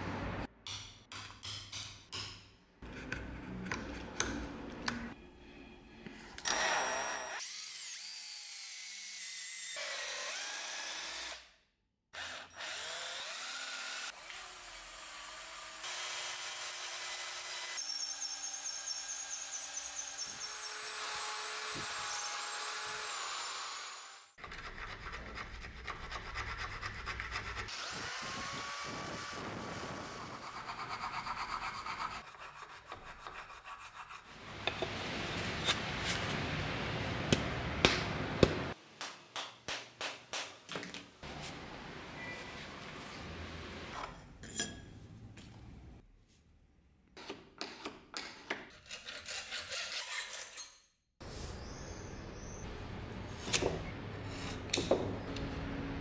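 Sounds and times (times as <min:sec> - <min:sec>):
electric drill boring into wood: 0:12.2 - 0:24.3, 0:27.7 - 0:30.2.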